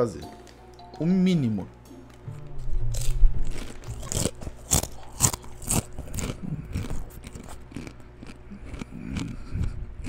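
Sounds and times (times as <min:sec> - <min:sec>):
crunchy food chewing: 0:02.9 - 0:10.0.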